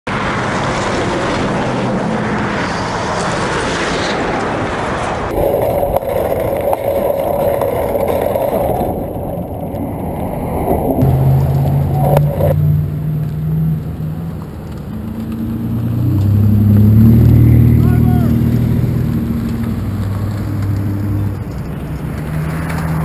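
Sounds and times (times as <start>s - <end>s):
freeway traffic: 0.0s - 23.0s
road noise: 0.0s - 23.0s
wind rush: 0.1s - 13.1s.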